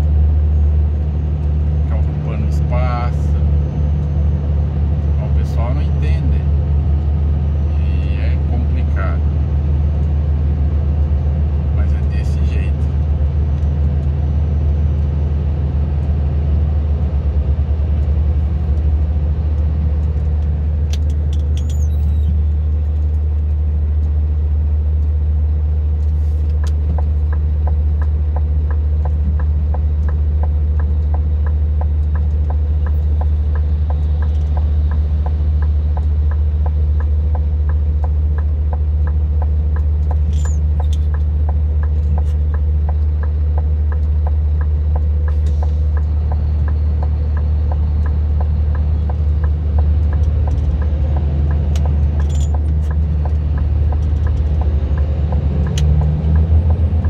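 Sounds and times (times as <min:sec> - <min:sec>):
vehicle engine droning: 0:00.0 - 0:57.0
turn signal ticking: 0:12.2 - 0:57.0.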